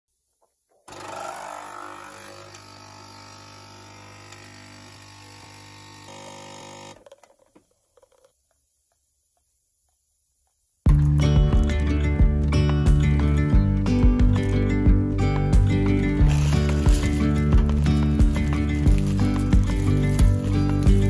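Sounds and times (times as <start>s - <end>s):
coffee machine pump buzzing: 0.8s - 7.2s, 16.2s - 21.0s.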